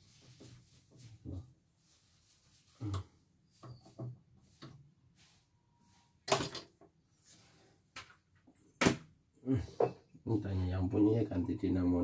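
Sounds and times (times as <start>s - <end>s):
tools clattering on workbench: 6.3s - 6.9s.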